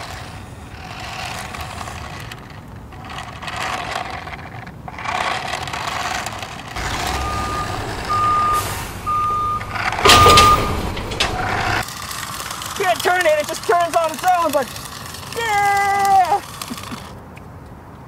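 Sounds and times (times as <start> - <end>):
loud clatter: 0.8 - 15.3
low engine rumble: 6.7 - 11.8
reversing alarm beeping: 6.8 - 11.8.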